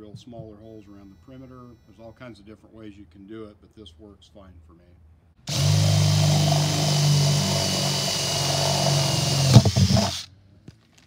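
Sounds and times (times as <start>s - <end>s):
cordless drill boring through plastic: 5.5s - 10.3s.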